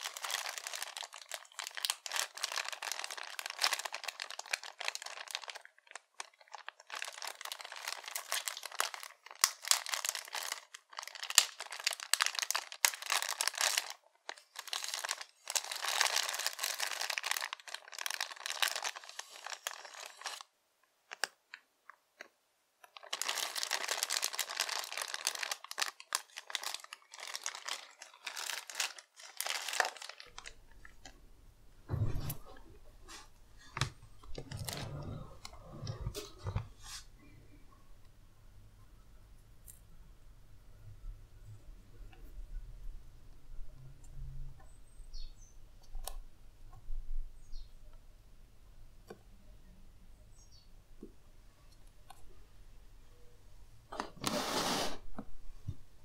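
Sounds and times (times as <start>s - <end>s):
plastic bag crinkling: 0.0s - 20.5s, 21.1s - 21.6s, 22.8s - 31.2s, 31.9s - 37.1s.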